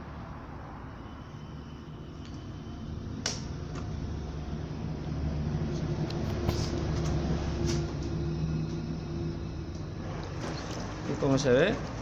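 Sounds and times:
washing machine running: 0.9 - 12.0.

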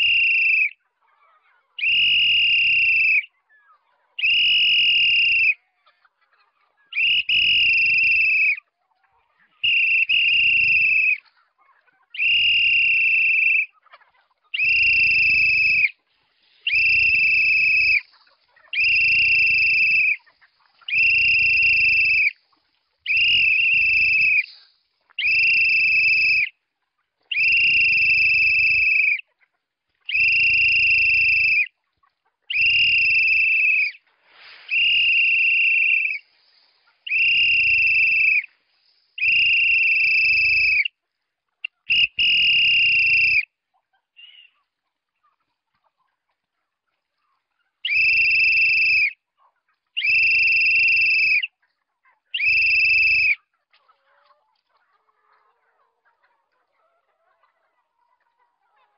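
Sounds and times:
high-pitched whistle blasts: 0.0 - 0.8, 1.8 - 3.3, 4.2 - 5.6, 7.0 - 8.6, 9.6 - 11.2, 12.2 - 13.7, 14.6 - 15.9, 16.6 - 18.1, 18.8 - 20.2, 20.9 - 22.4, 23.1 - 24.6, 25.2 - 26.5, 27.3 - 29.2, 30.1 - 31.7, 32.5 - 34.0, 34.6 - 38.6, 39.2 - 40.9, 41.9 - 43.5, 47.9 - 49.2, 50.0 - 51.5, 52.4 - 53.4.

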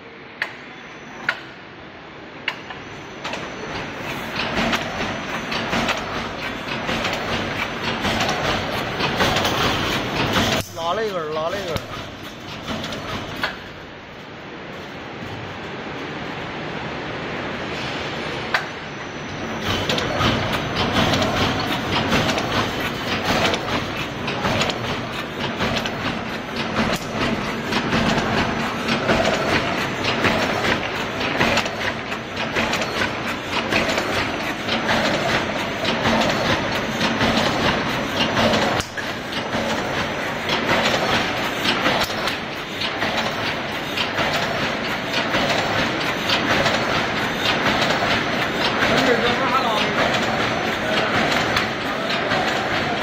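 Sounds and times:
rapid crackling clatter of welding: 3.7 - 13.7, 19.6 - 53.0
welding machine clicks: 19.7 - 50.5.

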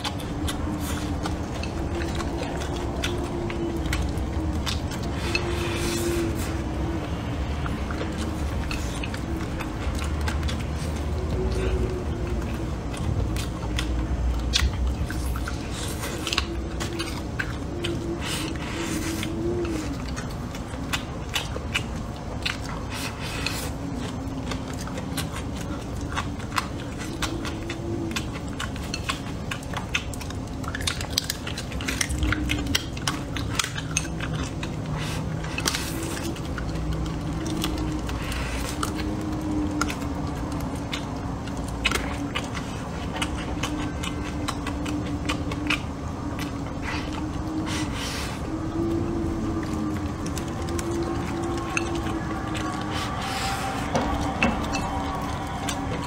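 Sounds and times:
person chewing: 0.0 - 56.0.

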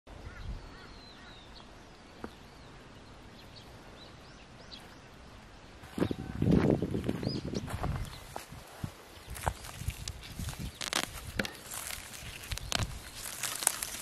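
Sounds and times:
faint outdoor hiss: 0.1 - 14.0
small birds chirping: 0.1 - 14.0
footsteps crunching on dirt: 5.8 - 14.0.

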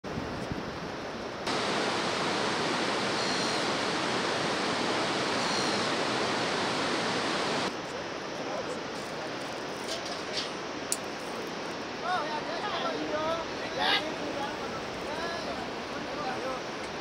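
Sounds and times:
white-water river rushing: 1.5 - 7.7, 11.8 - 17.0.

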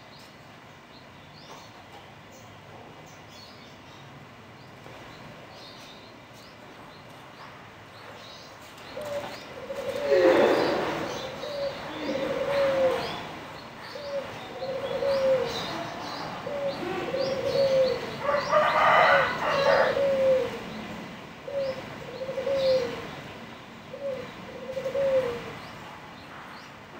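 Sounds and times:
small birds chirping: 0.0 - 18.7
dove cooing: 8.9 - 23.2, 23.8 - 25.8.

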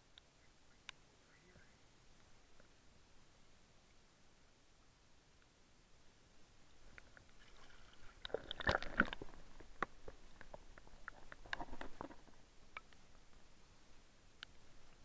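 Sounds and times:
water sloshing: 6.8 - 12.4.

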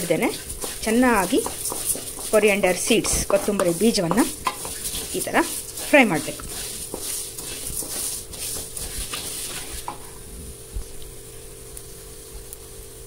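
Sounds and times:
spatula scraping seeds in pan: 0.0 - 10.2
oil sizzling: 0.0 - 11.2.

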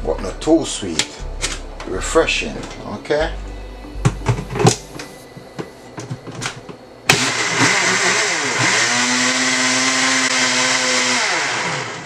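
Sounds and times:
blender running: 7.1 - 12.0.

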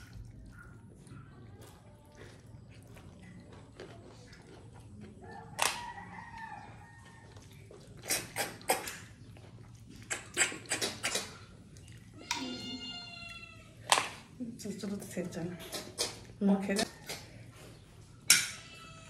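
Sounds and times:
wet slurps: 0.0 - 6.0, 7.0 - 12.3, 15.5 - 17.8.

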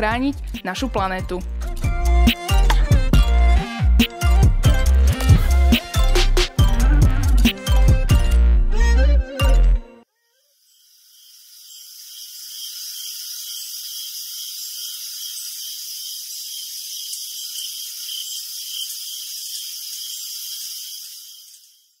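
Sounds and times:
high-pitched pulsing hiss: 10.5 - 22.0.

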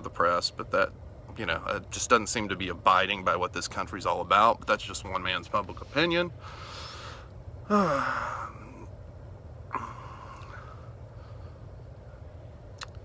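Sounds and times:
steady low hum: 0.0 - 13.0
soft breathy noise: 5.7 - 8.9, 9.7 - 12.3
man sighing: 7.6 - 8.9, 9.7 - 10.9.

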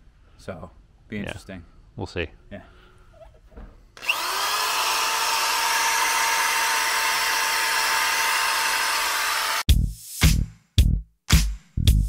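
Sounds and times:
electric drill with wire wheel: 4.0 - 9.7.

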